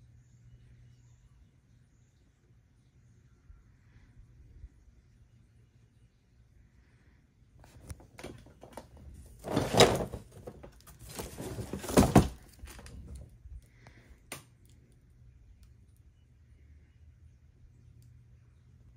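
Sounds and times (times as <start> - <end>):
thumps and rustles: 7.7 - 13.3.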